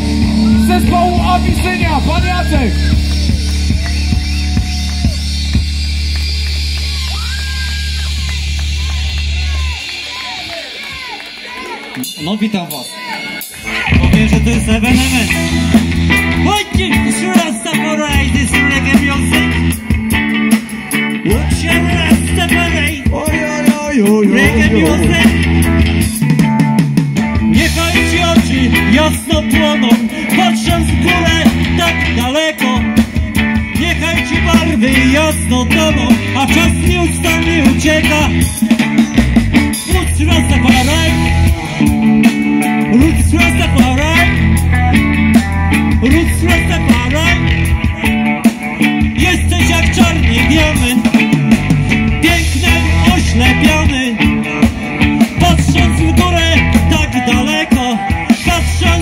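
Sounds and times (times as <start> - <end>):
bass guitar: 0.0 - 11.3, 13.5 - 59.0
drum kit: 0.0 - 11.5, 13.4 - 59.0
electric guitars: 0.0 - 12.1, 13.4 - 59.0
person singing: 23.0 - 25.7, 52.2 - 59.0.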